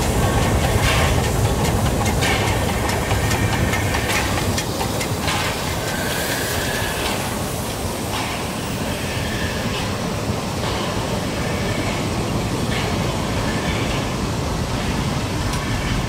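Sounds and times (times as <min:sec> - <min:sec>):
wheels clicking over rail joints: 0:00.0 - 0:08.5
steam hiss: 0:00.0 - 0:16.0
steam train passing: 0:00.0 - 0:16.0.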